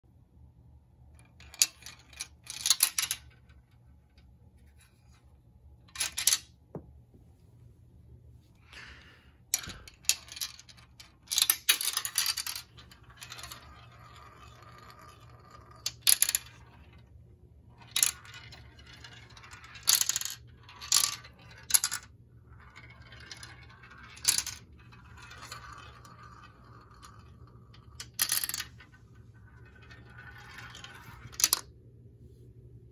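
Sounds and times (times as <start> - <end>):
marble clicking down plastic run: 9.6 - 17.1, 17.8 - 31.7
marble rolling in bowl: 9.6 - 31.7.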